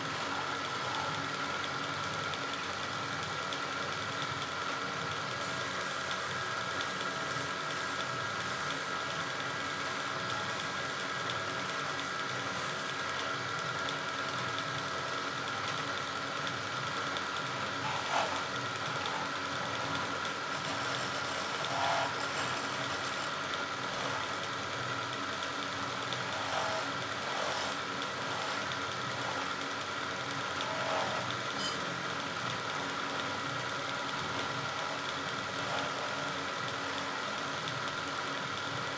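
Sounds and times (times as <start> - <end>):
wood lathe humming: 0.0 - 1.1, 17.1 - 37.5
chisel cutting spinning wood: 0.0 - 1.6, 17.1 - 38.0.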